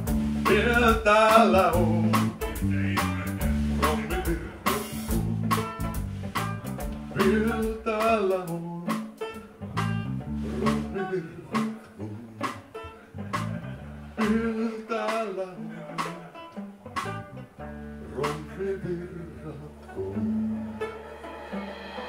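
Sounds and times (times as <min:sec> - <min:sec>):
steady beat: 0:00.0 - 0:11.0, 0:11.6 - 0:14.4, 0:15.9 - 0:17.4, 0:19.7 - 0:22.0
electric bass: 0:00.0 - 0:14.7, 0:15.6 - 0:22.0
banjo: 0:00.0 - 0:22.0
man singing with vibrato: 0:00.4 - 0:05.4, 0:07.1 - 0:09.3, 0:10.4 - 0:13.3, 0:14.2 - 0:16.6, 0:18.0 - 0:20.7.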